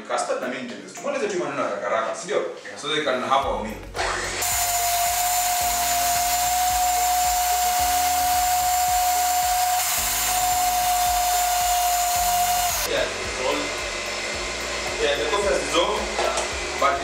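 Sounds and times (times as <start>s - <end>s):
stand mixer motor whining: 4.0s - 16.8s.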